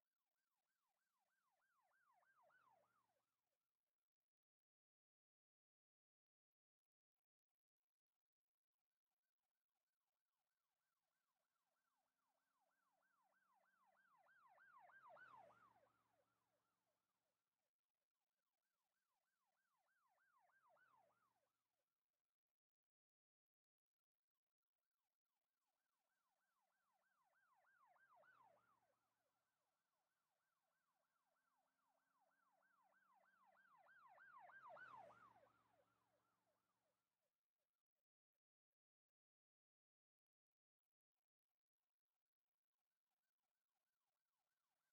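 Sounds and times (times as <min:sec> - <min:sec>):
faint yelping siren: 0:30.6 - 0:36.5.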